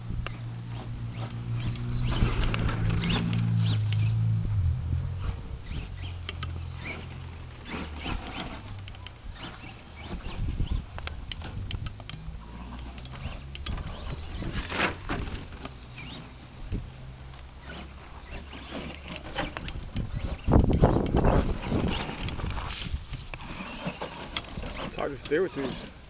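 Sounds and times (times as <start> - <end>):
electric motor whirring: 0.0 - 26.0
tyres scrabbling over dirt: 0.7 - 3.9, 5.2 - 16.6, 17.3 - 26.0
small clicks: 5.7 - 14.7, 17.3 - 22.5.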